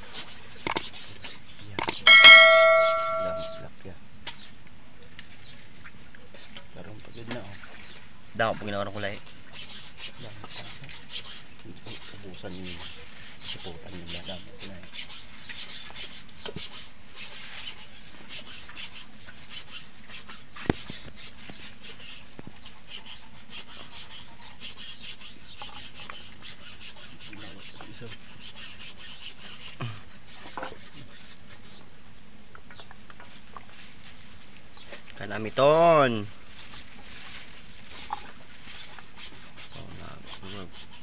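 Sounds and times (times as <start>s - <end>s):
sharp click: 0.7s - 0.9s, 1.8s - 3.6s
faint crackles and rustles: 29.2s - 41.0s.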